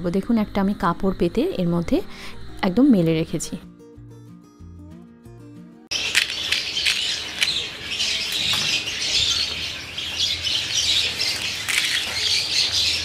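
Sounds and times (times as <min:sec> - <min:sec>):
fried shells crunching in hand: 0:05.9 - 0:07.7, 0:11.3 - 0:12.3.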